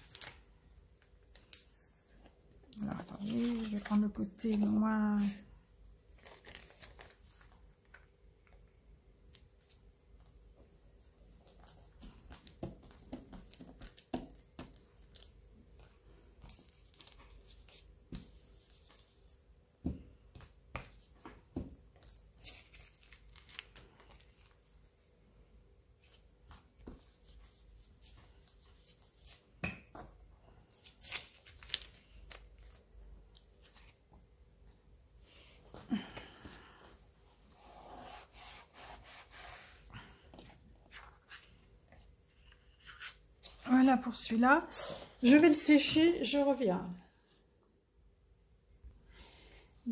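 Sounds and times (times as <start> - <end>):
paper rustling: 2.8 - 5.5, 6.1 - 8.0, 22.0 - 24.9, 30.7 - 34.0
plastic sheet crinkling: 2.8 - 5.5, 6.1 - 7.7, 22.0 - 24.7, 30.7 - 34.0.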